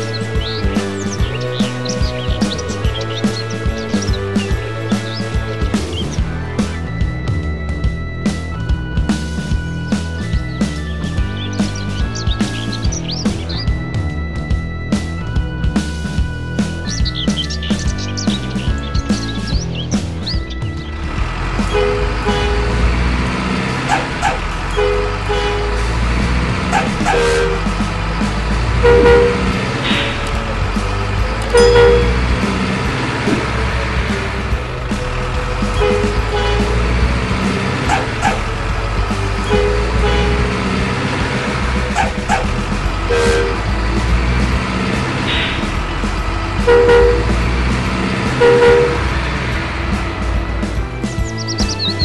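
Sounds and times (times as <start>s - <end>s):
music: 0.0s - 52.0s
truck engine rumble: 0.0s - 52.0s
two-tone horn toots: 21.6s - 27.9s, 28.6s - 30.5s, 31.4s - 50.6s.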